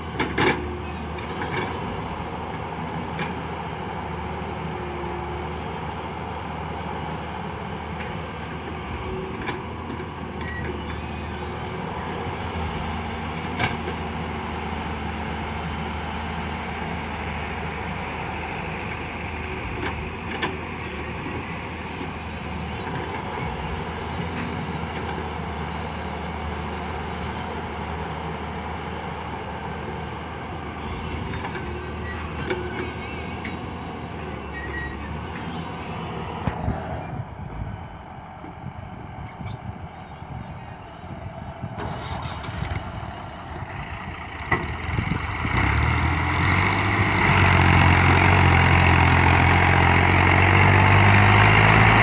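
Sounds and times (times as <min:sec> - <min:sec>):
diesel engines droning: 0:00.0 - 0:52.0.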